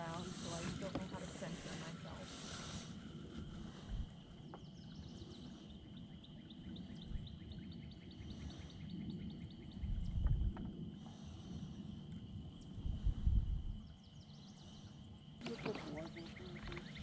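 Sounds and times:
low rumble: 9.4 - 11.4.

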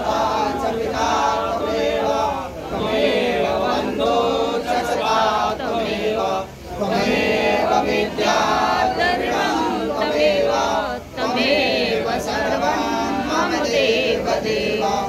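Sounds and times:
men chanting a hymn: 0.0 - 15.0.

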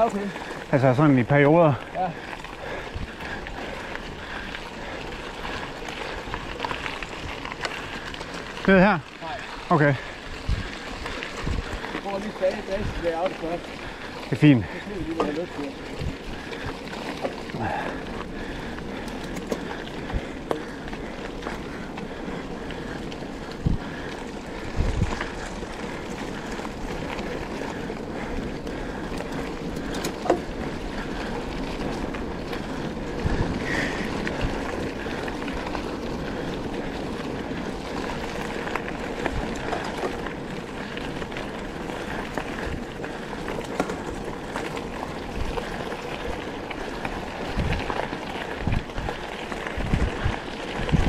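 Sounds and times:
bike tyres rolling on trail: 0.0 - 51.0
wind rush on microphone: 2.6 - 4.8, 10.0 - 13.1, 17.5 - 46.2, 46.8 - 51.0
bike knocks and bumps: 29.8 - 30.5.

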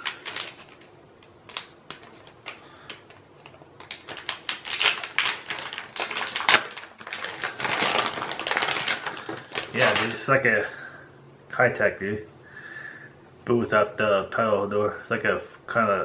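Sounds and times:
plastic packaging crinkling: 0.0 - 10.5.

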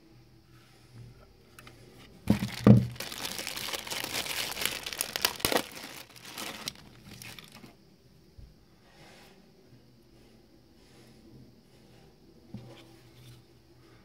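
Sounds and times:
plastic bag crinkling: 2.3 - 7.7.

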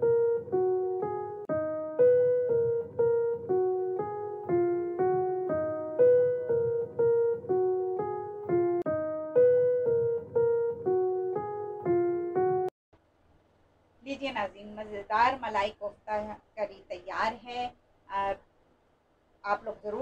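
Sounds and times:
simple keyboard tune: 0.0 - 12.8.

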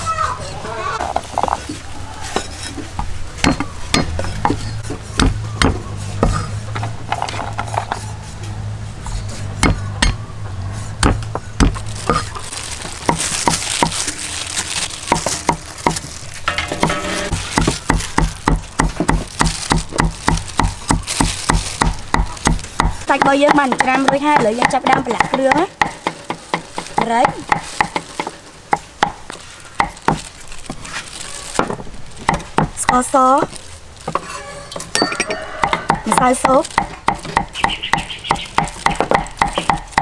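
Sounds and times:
cleaver chopping on wooden block: 3.4 - 6.5, 9.5 - 10.2, 11.0 - 12.3, 16.8 - 30.2, 35.0 - 40.0.

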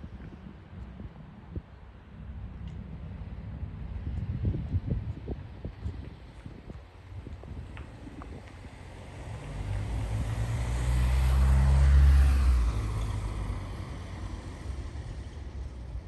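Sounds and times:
vehicle engine passing by: 8.7 - 15.4.

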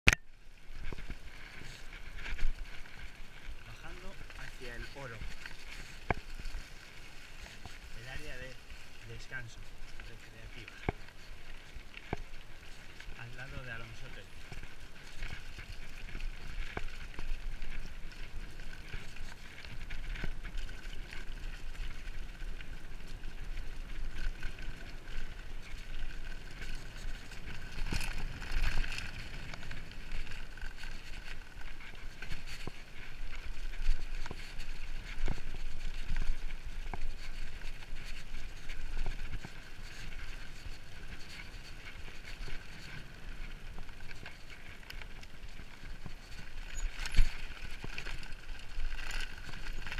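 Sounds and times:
bike rattling and knocking: 0.1 - 49.9
bike tyres on gravel: 0.1 - 49.9.

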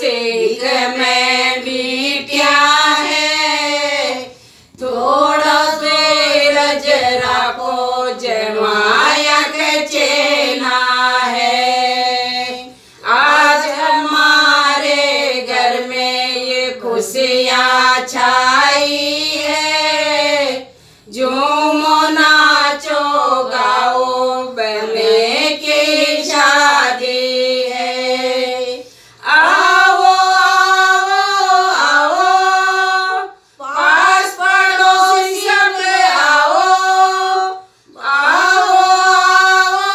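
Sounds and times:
women singing unaccompanied: 0.0 - 39.9.

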